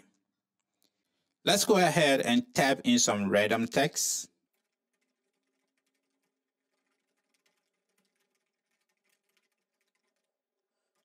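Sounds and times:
faint keyboard typing: 4.4 - 11.0.

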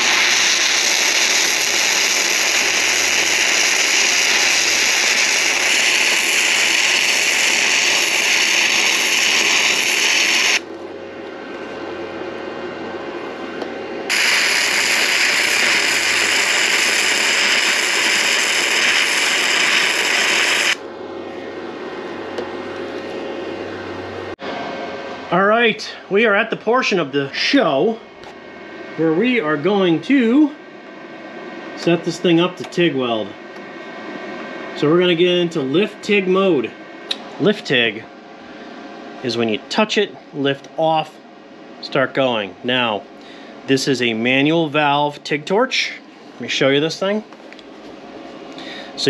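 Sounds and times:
welding arc sizzling: 0.0 - 10.7, 14.0 - 20.8
faint steady hum: 0.0 - 49.0.

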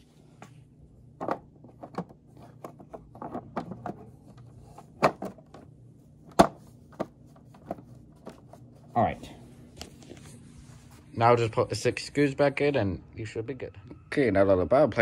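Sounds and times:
hard plastic clicking and knocking: 1.2 - 5.7, 6.3 - 8.4.

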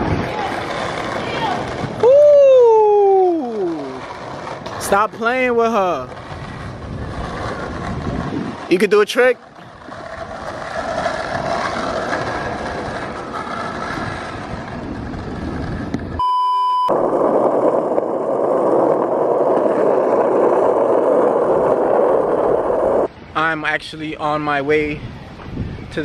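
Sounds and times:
skateboard wheels rolling on asphalt: 0.0 - 16.2, 16.8 - 26.0
steady test-tone beep: 16.2 - 16.9.

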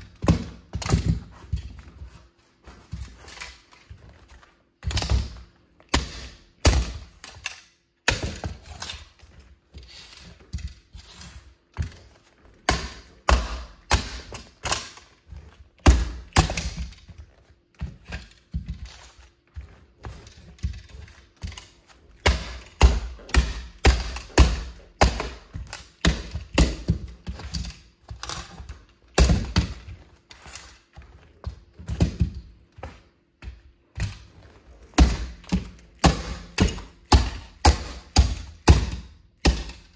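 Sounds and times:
heel thuds: 0.0 - 3.3, 31.0 - 39.8.

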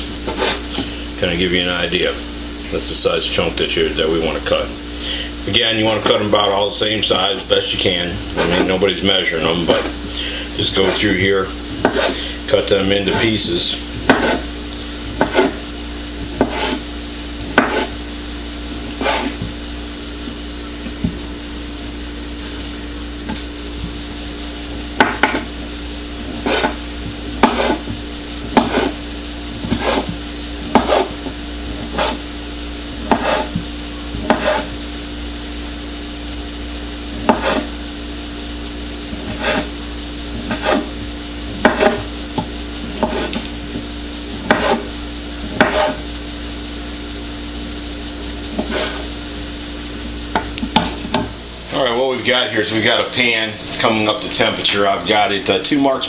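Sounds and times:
low hum: 0.0 - 56.0
knife chopping on wooden board: 0.3 - 0.9, 11.8 - 12.2, 14.0 - 14.5, 15.1 - 15.6, 16.2 - 16.8, 17.4 - 18.0, 18.9 - 19.6, 25.0 - 25.5, 26.3 - 26.8, 27.4 - 29.0, 29.6 - 32.2, 33.0 - 34.7, 37.2 - 37.7, 39.1 - 39.7, 40.4 - 46.0, 48.5 - 49.1, 50.4 - 51.3.

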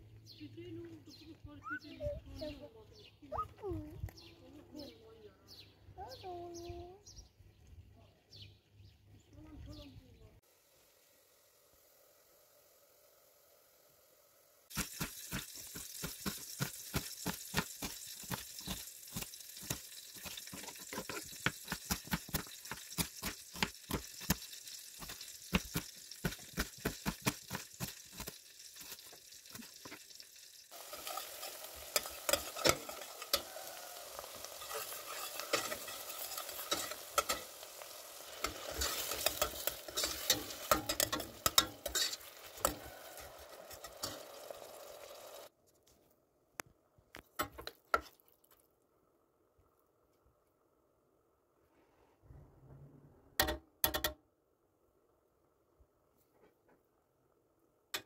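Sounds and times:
food sizzling in a pot: 10.4 - 45.5
spoon scraping a pot: 17.8 - 24.4, 30.8 - 33.6, 34.2 - 37.6, 38.4 - 44.2.

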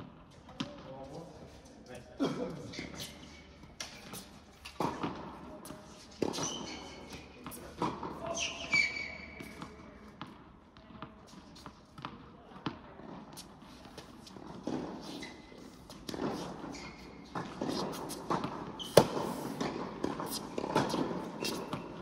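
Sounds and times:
tennis balls bouncing indoors: 0.0 - 1.2, 2.4 - 22.0
short high squeaks: 6.3 - 7.3, 8.3 - 9.6, 16.3 - 18.2, 18.8 - 19.5.

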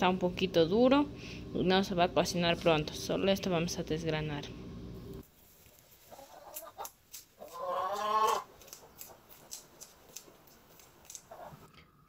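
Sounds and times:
corn kernels snapping off cob: 6.6 - 11.4.

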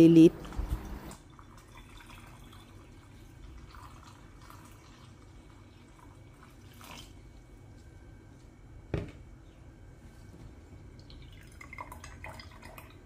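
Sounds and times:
liquid trickling into pitcher: 0.4 - 7.2, 11.0 - 13.0.

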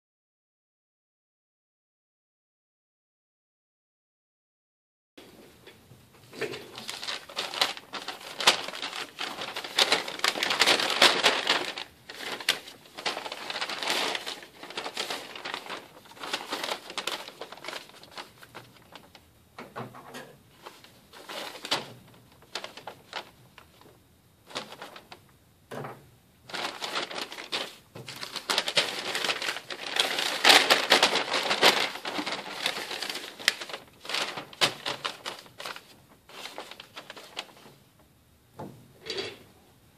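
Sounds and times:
paper bag rustling and crinkling: 6.2 - 19.3, 20.5 - 25.3, 26.4 - 38.0.

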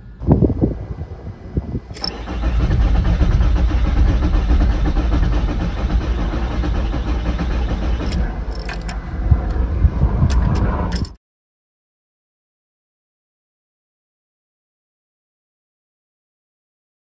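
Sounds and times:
starter motor cranking diesel engine: 1.8 - 9.7
starter click: 1.9 - 2.3, 6.5 - 9.0, 10.3 - 11.2.

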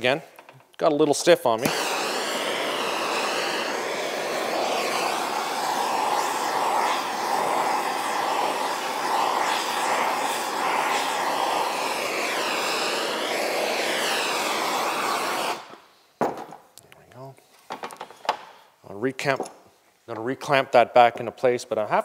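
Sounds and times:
gas torch hissing: 1.5 - 15.9.

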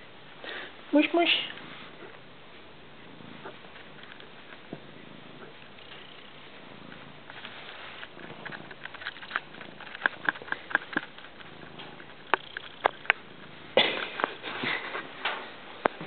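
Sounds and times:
rustle: 3.2 - 12.4.

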